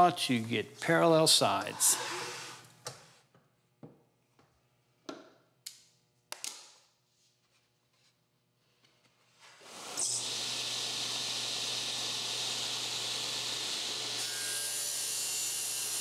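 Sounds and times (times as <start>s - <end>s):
table saw motor running: 10.0s - 16.0s.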